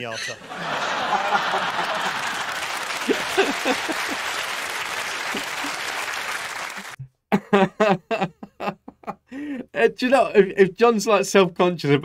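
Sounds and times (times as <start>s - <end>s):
man laughing: 0.5s - 4.4s, 5.2s - 5.9s, 7.3s - 9.8s
audience applauding: 0.5s - 7.0s.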